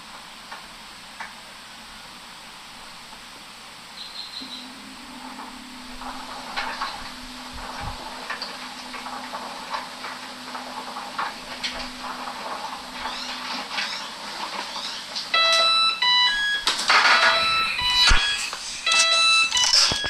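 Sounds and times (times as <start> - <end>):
washer low hum: 0.0 - 20.0
electronic beep melody: 17.2 - 20.0.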